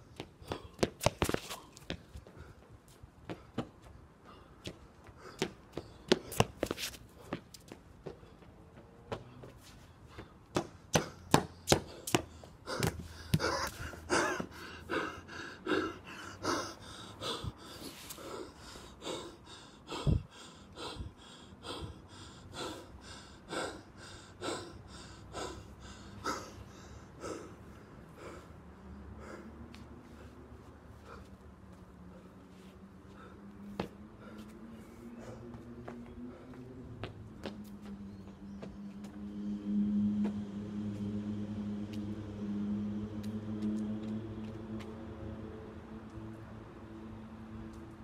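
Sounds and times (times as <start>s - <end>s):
person panting hard: 0.2s - 37.4s.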